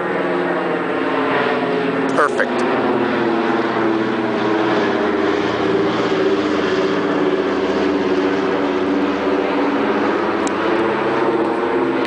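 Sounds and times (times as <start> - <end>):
vehicle engine running steadily: 0.0 - 12.0.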